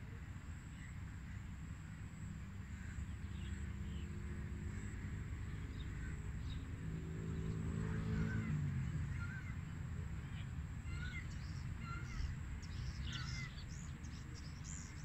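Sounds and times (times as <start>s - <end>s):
birds chirping: 8.1s - 15.0s.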